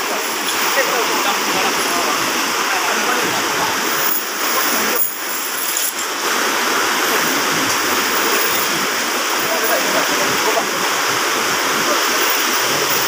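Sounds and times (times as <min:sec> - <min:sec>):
water rushing over rocks: 0:00.0 - 0:13.0.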